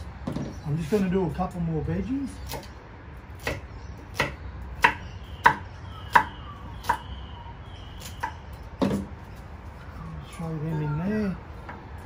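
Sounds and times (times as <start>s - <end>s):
knife chopping on wooden board: 2.4s - 2.8s, 3.4s - 7.0s.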